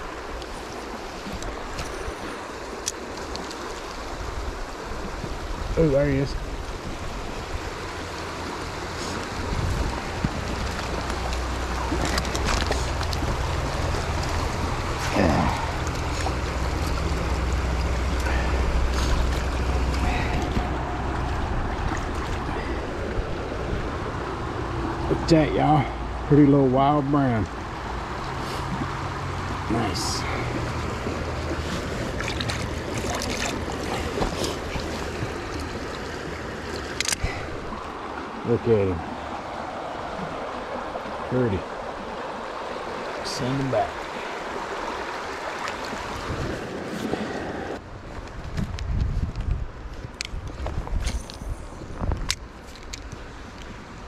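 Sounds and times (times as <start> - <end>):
river water rushing: 0.0 - 48.4, 51.2 - 54.0
wind rumble on microphone: 4.0 - 25.3, 45.9 - 54.0.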